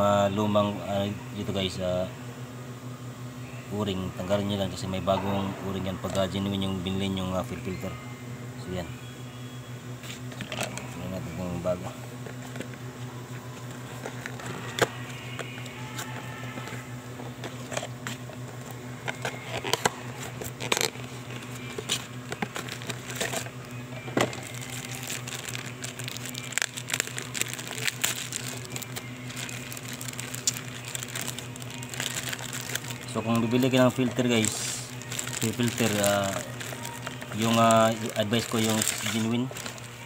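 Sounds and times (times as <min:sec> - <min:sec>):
steady low hum: 0:00.0 - 0:40.0
plastic bag crinkling: 0:19.1 - 0:40.0.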